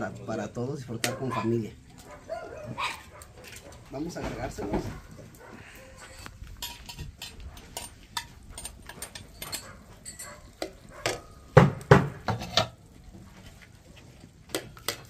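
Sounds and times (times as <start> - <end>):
utensils scraping in a frying pan: 5.6 - 11.3, 12.2 - 12.8.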